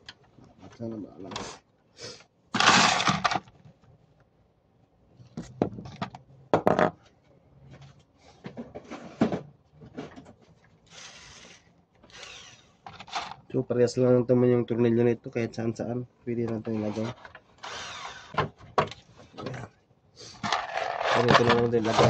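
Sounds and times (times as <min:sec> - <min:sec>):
rummaging parts in plastic bowl: 0:20.4 - 0:22.0.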